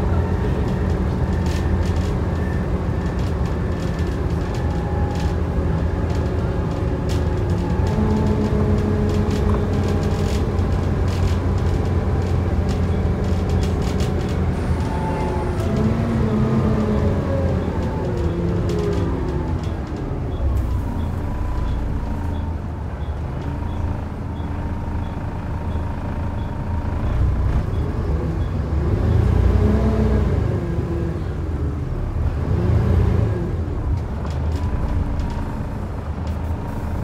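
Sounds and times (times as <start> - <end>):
bus diesel engine running: 0.0 - 37.0.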